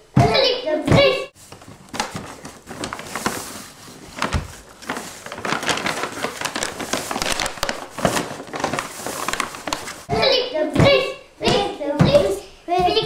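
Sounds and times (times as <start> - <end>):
paper bag rustling: 1.4 - 10.1.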